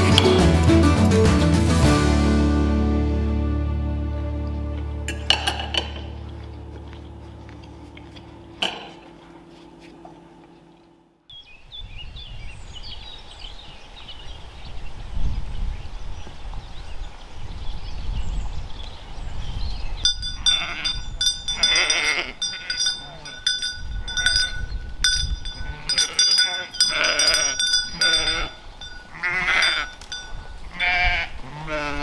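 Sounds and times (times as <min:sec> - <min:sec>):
background music: 0:00.0 - 0:06.7
wind on microphone: 0:11.6 - 0:32.0
birds chirping: 0:18.8 - 0:30.8
sheep bells jangling: 0:20.0 - 0:31.1.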